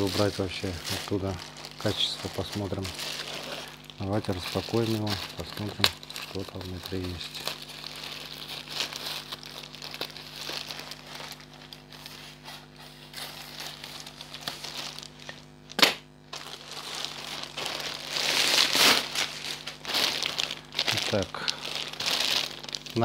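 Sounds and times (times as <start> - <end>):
plastic bag crinkling: 0.0 - 23.0
loud snap: 15.7 - 16.1.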